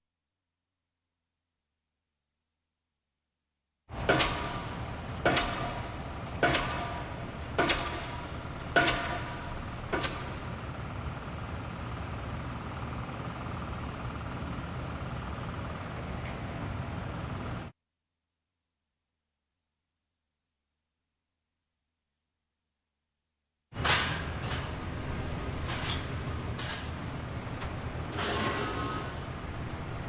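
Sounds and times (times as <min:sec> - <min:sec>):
steady low hum: 0:23.8 - 0:30.0.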